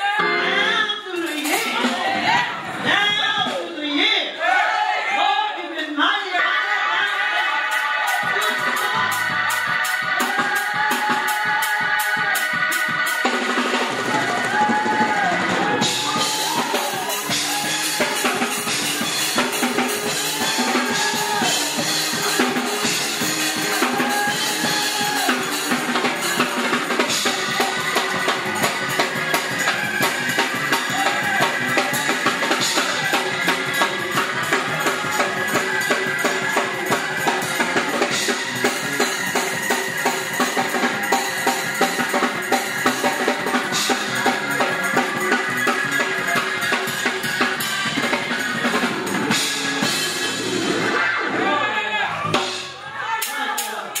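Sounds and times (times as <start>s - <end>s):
live band playing fast music: 0.0s - 4.2s, 6.9s - 54.0s
drum kit beat: 7.6s - 51.4s, 52.2s - 54.0s
electric bass guitar: 13.4s - 52.8s.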